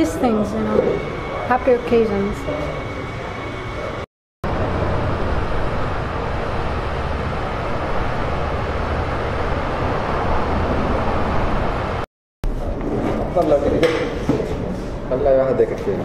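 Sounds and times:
low rumble: 4.4 - 12.1.

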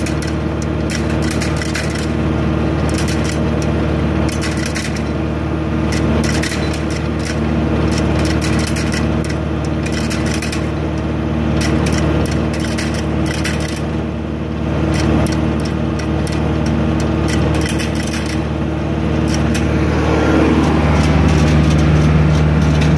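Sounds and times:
tractor engine running: 0.0 - 22.9
fast irregular rattling: 2.9 - 5.1, 5.9 - 14.0, 14.9 - 19.7, 20.5 - 22.9.

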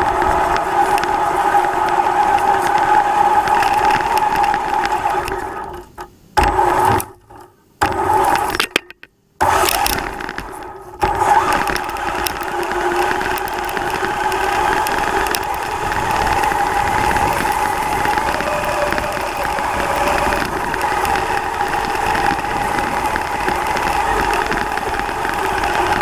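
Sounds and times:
rc truck whine and rattle: 0.0 - 8.8, 9.4 - 26.0.

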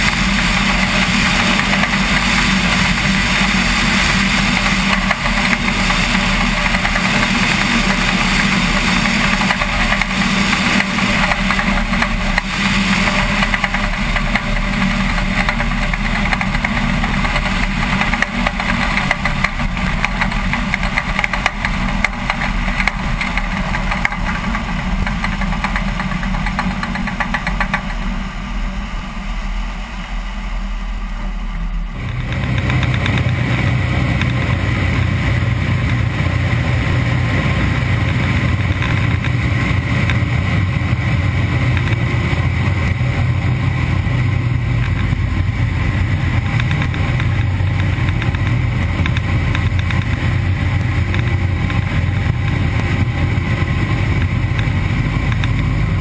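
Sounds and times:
radial aircraft engine running: 0.0 - 56.0
rushing noise: 0.0 - 56.0.

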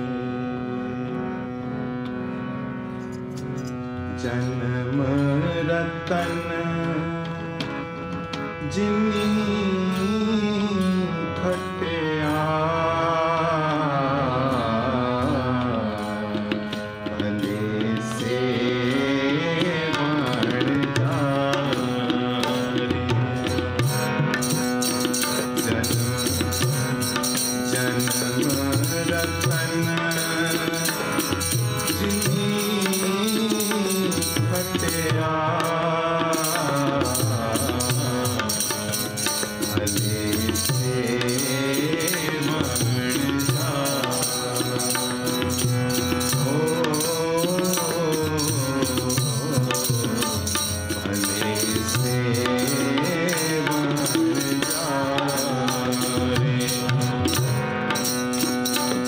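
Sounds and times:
harmonium chords: 0.0 - 59.0
person singing gliding melody: 0.0 - 59.0
tabla playing: 0.0 - 59.0.

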